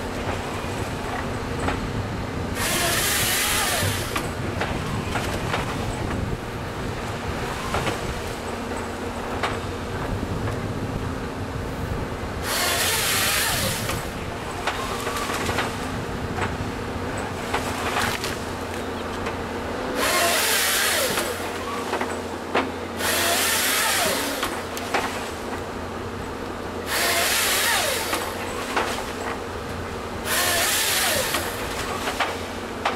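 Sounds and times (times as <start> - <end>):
excavator diesel engine running: 0.0 - 32.9
chain saw cutting log: 2.5 - 4.8, 12.4 - 16.0, 19.8 - 25.6, 26.8 - 29.4, 30.1 - 32.9
knocks of wood and steel: 20.0 - 25.7, 30.3 - 32.9.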